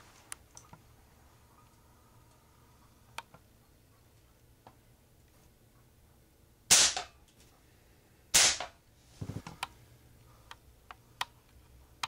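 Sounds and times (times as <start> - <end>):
air pistol cracks: 6.7 - 7.1, 8.4 - 8.8.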